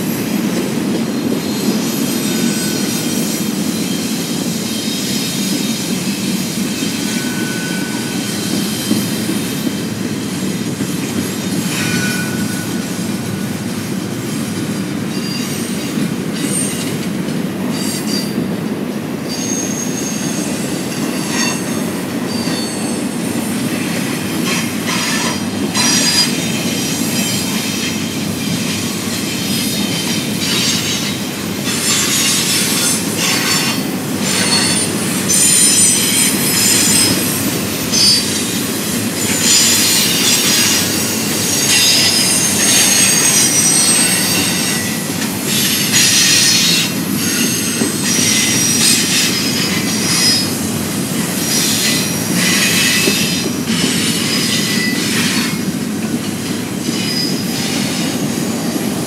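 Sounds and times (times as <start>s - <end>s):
freight train wheels rumbling: 0.0s - 59.0s
high-pitched wheel squeals: 6.8s - 9.2s, 19.3s - 50.6s.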